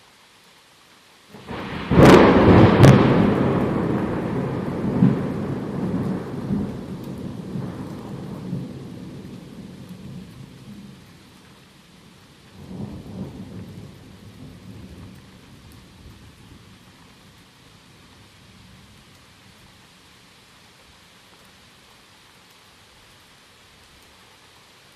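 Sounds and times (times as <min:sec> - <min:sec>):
rain falling: 0:00.0 - 0:24.9
thunder rumbling: 0:01.4 - 0:10.9.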